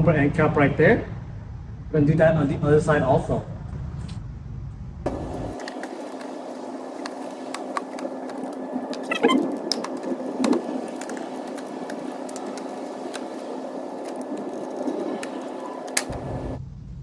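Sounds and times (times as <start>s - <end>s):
steady hum: 4.3s - 17.0s.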